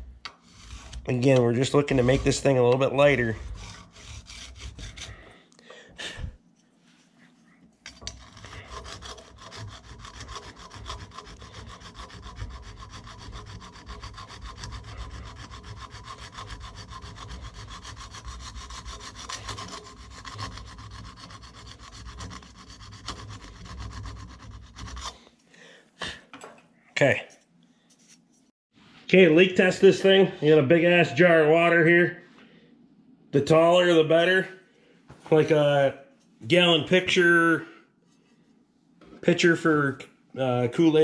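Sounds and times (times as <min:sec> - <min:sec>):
file rasping on metal: 0:00.0 - 0:05.3, 0:07.9 - 0:25.2.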